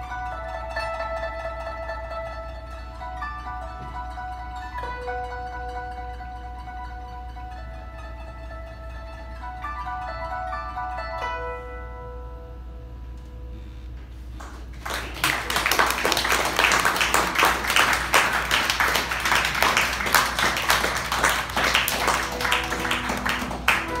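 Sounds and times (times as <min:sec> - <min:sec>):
guzheng note: 0:00.0 - 0:14.3, 0:14.9 - 0:24.0
audience applause: 0:14.4 - 0:24.0.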